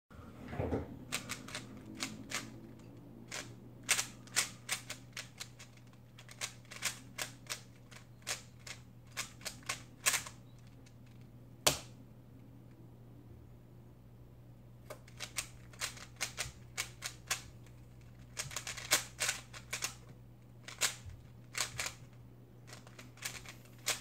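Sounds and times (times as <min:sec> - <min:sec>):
puzzle cube plastic clacks: 0:14.9 - 0:22.1, 0:22.7 - 0:24.0.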